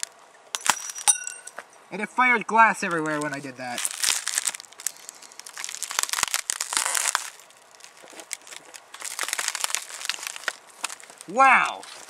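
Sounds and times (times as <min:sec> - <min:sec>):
plastic film crinkling: 0:00.0 - 0:01.1, 0:02.9 - 0:12.0
broken glass clicks: 0:00.0 - 0:01.6.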